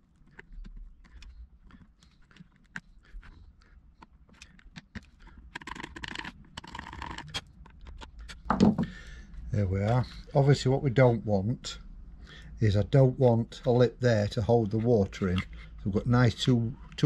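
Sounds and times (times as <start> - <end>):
chisel scraping plastic: 0.1 - 9.0, 14.6 - 17.0.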